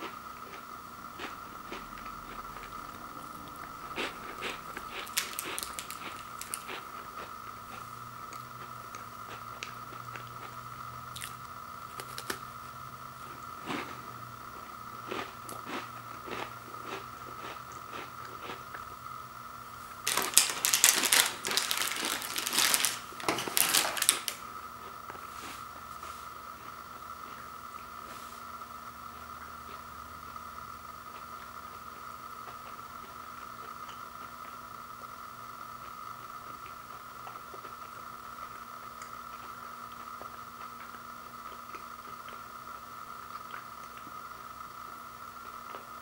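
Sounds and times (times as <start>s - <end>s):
crunching and chewing crackers: 0.0s - 28.1s, 28.7s - 46.0s
plastic wrapper crinkling: 4.8s - 6.7s, 20.0s - 24.4s.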